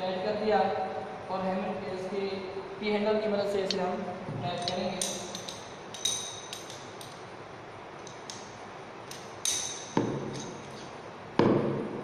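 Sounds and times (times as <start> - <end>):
metal tool clinking: 4.6 - 7.3, 8.0 - 10.9.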